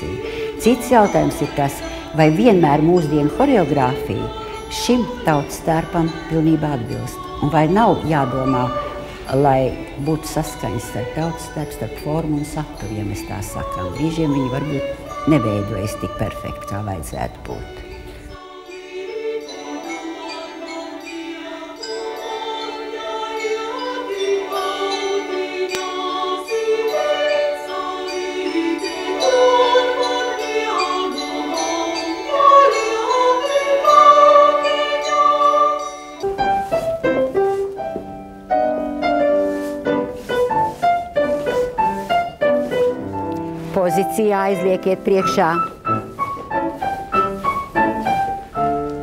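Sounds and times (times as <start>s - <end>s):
choir singing: 0.0s - 36.8s
piano playing: 0.0s - 49.0s.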